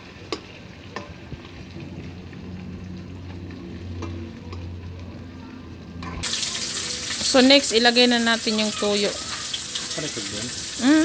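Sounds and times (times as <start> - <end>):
meat sizzling in a wok: 6.2 - 11.0.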